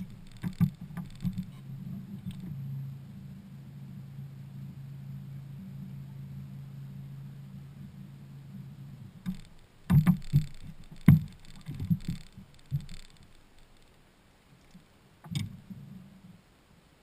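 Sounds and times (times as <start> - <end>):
electric trolling motor hum: 0.0 - 14.0
thud: 9.3 - 13.1.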